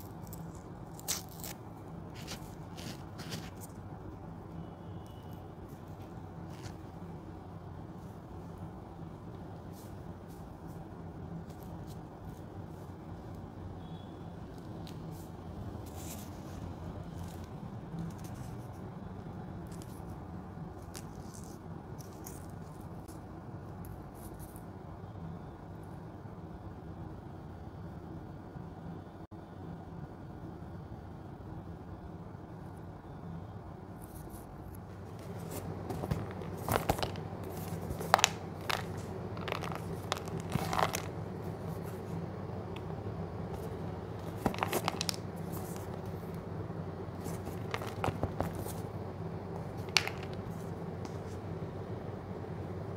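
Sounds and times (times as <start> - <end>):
steady low hum: 0.0 - 52.9
cardboard carton crackling: 35.0 - 42.1, 43.6 - 46.3, 47.2 - 48.9
wrapper crinkling and rustling: 35.0 - 42.1, 43.6 - 46.2, 47.2 - 48.8, 49.6 - 50.7.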